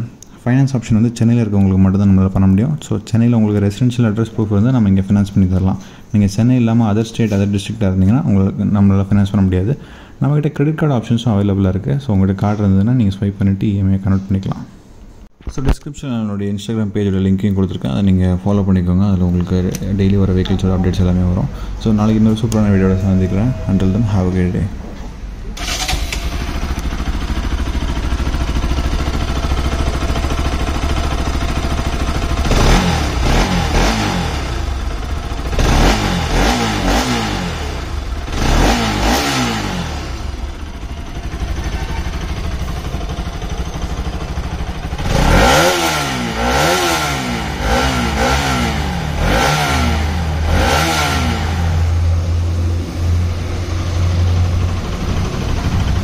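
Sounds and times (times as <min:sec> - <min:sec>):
motorcycle engine idling and revving: 0:25.6 - 0:56.0.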